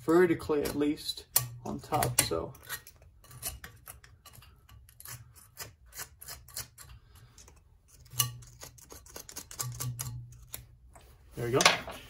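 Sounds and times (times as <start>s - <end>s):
steel pick scraping metal: 1.3s - 10.6s.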